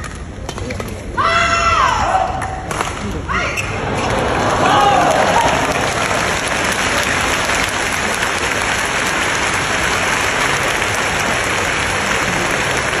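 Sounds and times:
crowd applauding: 3.8s - 13.0s.

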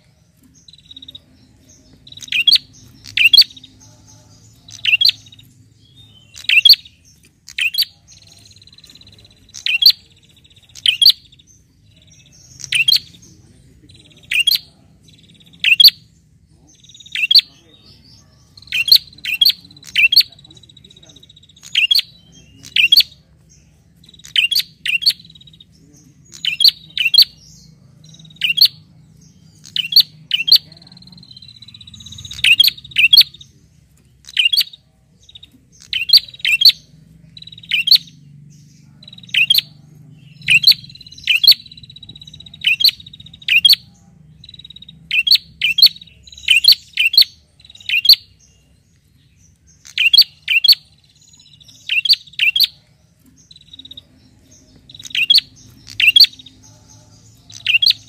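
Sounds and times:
bird giving sharp high calls: 40.4s - 48.2s.

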